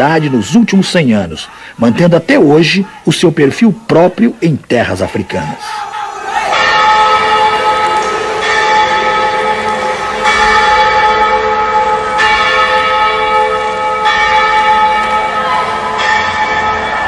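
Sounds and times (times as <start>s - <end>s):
church bell tolling: 6.5s - 17.0s.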